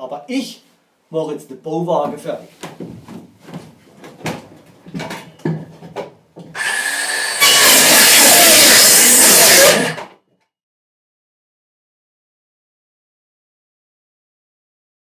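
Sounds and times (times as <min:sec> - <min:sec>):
circular saw cutting wood: 0:06.6 - 0:10.0.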